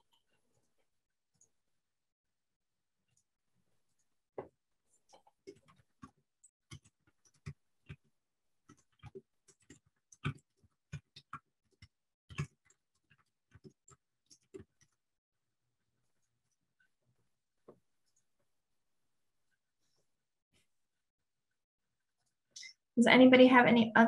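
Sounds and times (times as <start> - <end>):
computer keyboard typing: 5.1 - 15.0.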